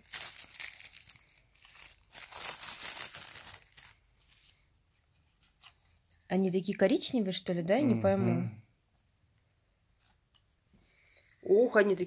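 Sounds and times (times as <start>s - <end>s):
plastic packaging crinkling and tearing: 0.0s - 4.5s.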